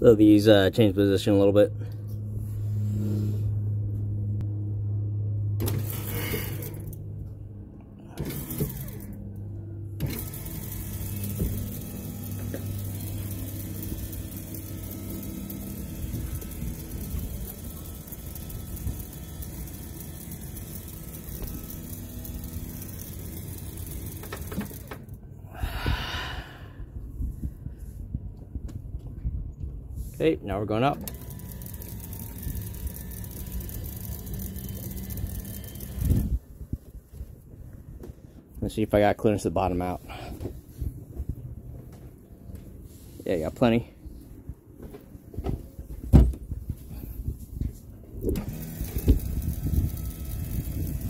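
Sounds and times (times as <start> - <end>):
electric winch motor humming: 1.8 - 26.8, 30.9 - 36.4, 48.2 - 51.0
breathy whoosh: 25.5 - 27.6.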